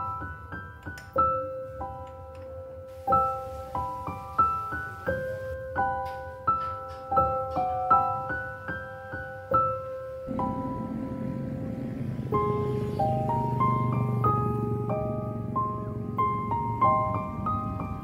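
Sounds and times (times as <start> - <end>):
slow piano melody: 0.0 - 18.0
low droning: 10.3 - 18.0.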